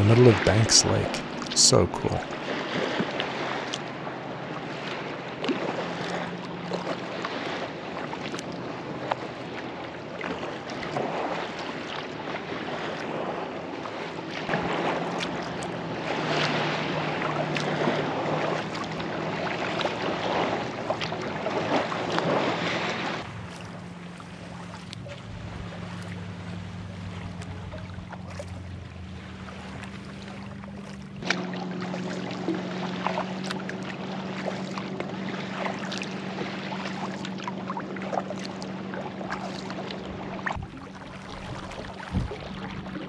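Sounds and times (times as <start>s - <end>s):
kayak paddle splashing: 0.0s - 43.0s
water moving along hull: 0.0s - 43.0s
wind on microphone: 40.4s - 43.0s.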